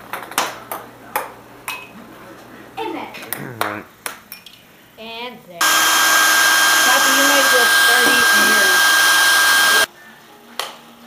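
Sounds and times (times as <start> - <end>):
hair dryer running: 5.6 - 9.9.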